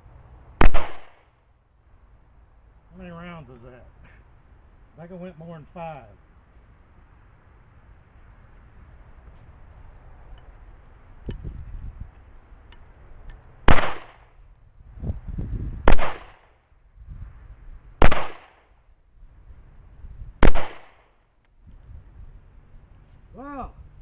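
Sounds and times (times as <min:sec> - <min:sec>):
pistol shots with echo: 0:00.6 - 0:01.2, 0:13.7 - 0:14.2, 0:15.9 - 0:16.4, 0:18.0 - 0:18.6, 0:20.4 - 0:21.0.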